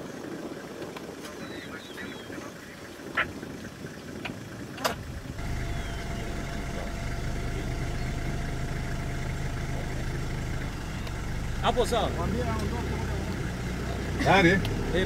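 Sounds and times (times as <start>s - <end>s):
vehicle engine starting and idling: 3.8s - 15.0s.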